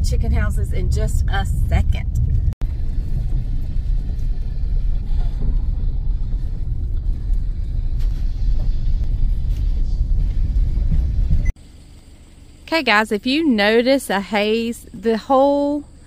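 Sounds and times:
car driving on gravel: 0.0 - 12.9.

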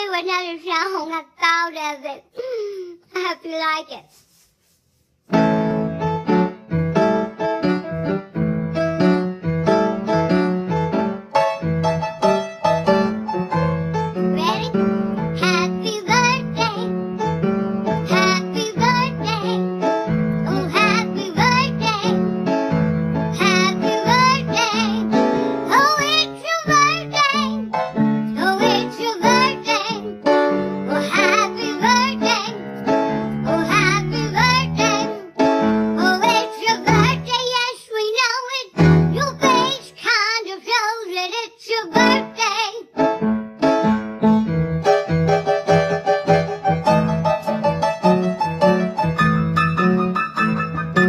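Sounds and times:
woman singing comically: 36.0 - 42.8
keyboard accompaniment: 43.0 - 51.0.

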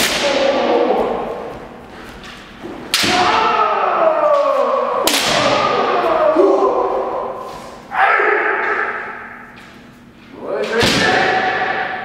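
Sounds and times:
long shout echoing: 3.0 - 9.4
bamboo sword strikes cracking: 5.0 - 5.6.

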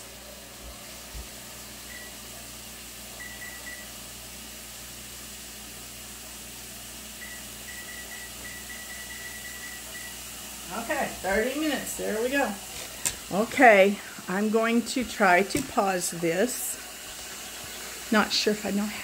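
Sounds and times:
oven timer beeps: 1.8 - 2.3, 3.2 - 4.0, 7.2 - 10.3.

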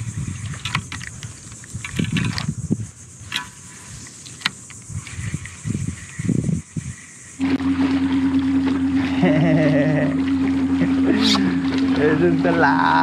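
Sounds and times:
wind rumbling on microphone: 0.0 - 9.1
fishing reel clicks and rattles: 0.1 - 5.4.

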